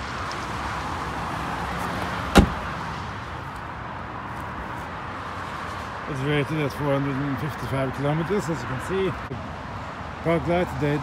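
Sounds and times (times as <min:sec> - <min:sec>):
car tailgate slamming: 0:02.3 - 0:02.7.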